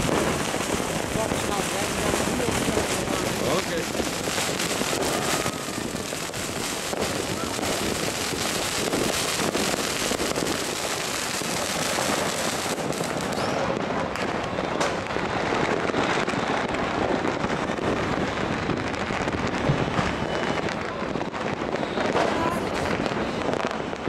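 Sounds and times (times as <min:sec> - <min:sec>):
sharp firework bang: 0:00.0 - 0:16.4
firecrackers crackling: 0:00.0 - 0:24.0.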